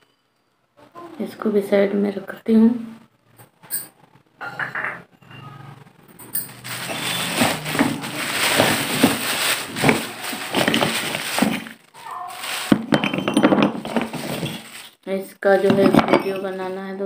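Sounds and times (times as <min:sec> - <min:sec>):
plastic bag crinkling: 0:06.4 - 0:15.0
clay pieces clinking: 0:15.6 - 0:16.7.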